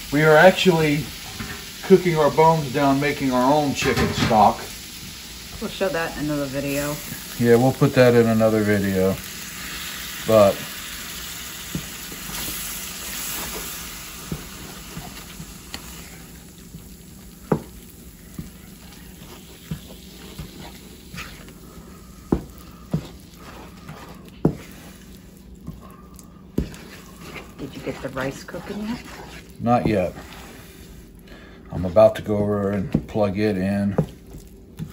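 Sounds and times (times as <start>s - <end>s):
sizzling in hot oil: 0.0s - 25.6s
wooden spoon scraping a pan: 11.5s - 16.8s, 17.4s - 34.9s.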